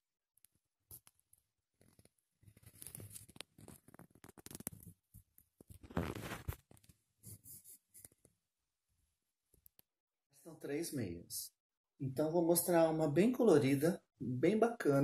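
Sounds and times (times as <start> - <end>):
socks rustling on carpet: 5.8 - 6.6.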